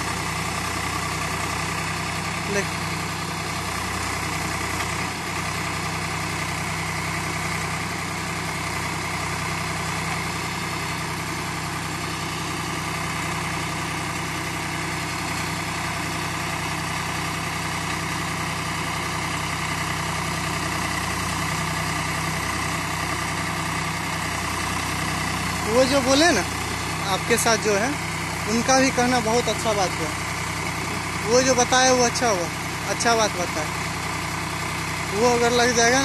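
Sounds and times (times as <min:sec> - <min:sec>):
backhoe digging soil: 0:00.0 - 0:08.7, 0:19.9 - 0:36.0
tractor diesel engine running: 0:00.0 - 0:36.0.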